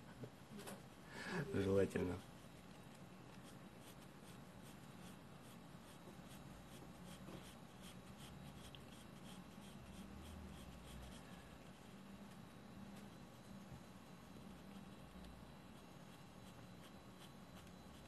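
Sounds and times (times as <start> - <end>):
pencil scratching on paper: 3.3 - 13.2, 14.3 - 18.0.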